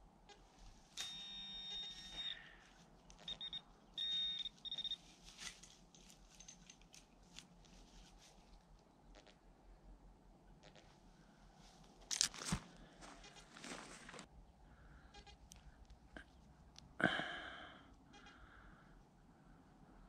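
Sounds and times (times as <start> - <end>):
short electronic beeps: 1.0 - 2.4, 3.2 - 5.0
metal detector pinpointer tone: 1.0 - 2.5, 3.2 - 5.0
scratching of soil and grass: 4.2 - 8.7, 11.6 - 14.3.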